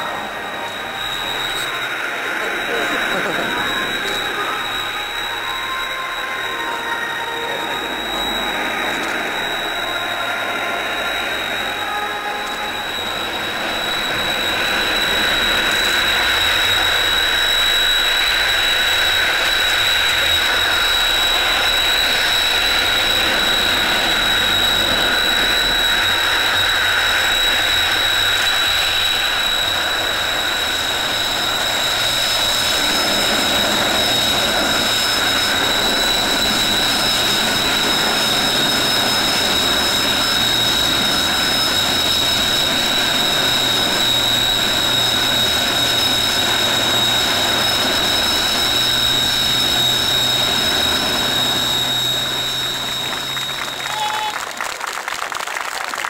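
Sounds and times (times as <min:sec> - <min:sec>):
rushing jet engine noise: 0:00.0 - 0:55.4
jet engine high-pitched whine: 0:00.0 - 0:56.0.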